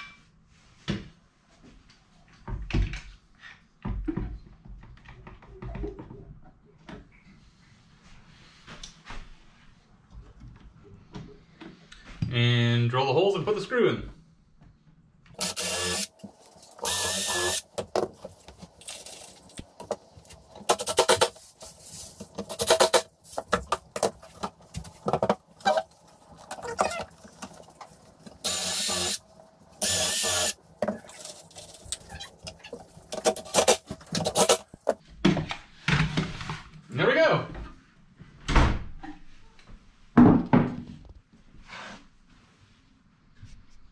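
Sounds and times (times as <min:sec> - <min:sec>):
cordless drill whine: 0:15.4 - 0:16.1, 0:16.8 - 0:17.6, 0:28.4 - 0:29.2, 0:29.8 - 0:30.6.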